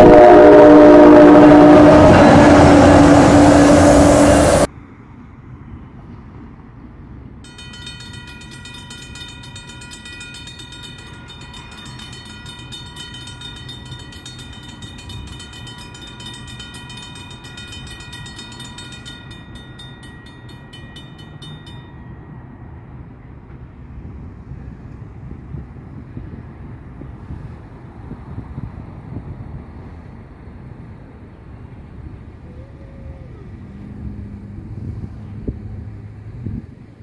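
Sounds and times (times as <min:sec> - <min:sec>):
railroad crossing bell ringing: 0:00.0 - 0:04.7, 0:07.4 - 0:24.6
low traffic rumble: 0:00.0 - 0:37.0.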